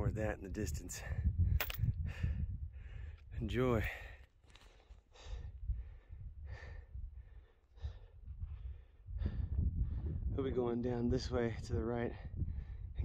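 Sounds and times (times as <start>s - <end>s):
wind rumble on microphone: 0.0s - 4.2s, 5.2s - 13.0s
person breathing hard: 4.7s - 10.2s.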